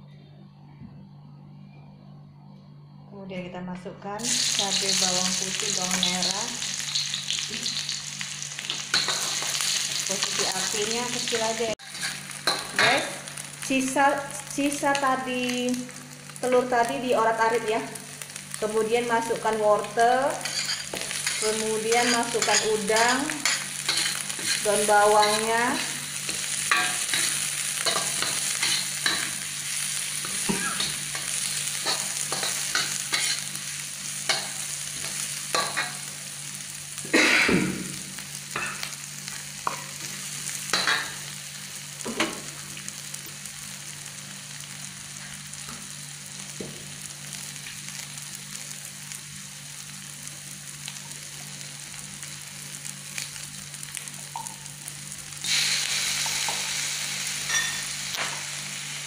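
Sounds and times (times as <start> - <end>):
hot oil sizzling: 4.2 - 59.0
metal spatula scraping a wok: 20.4 - 29.4, 30.2 - 33.5.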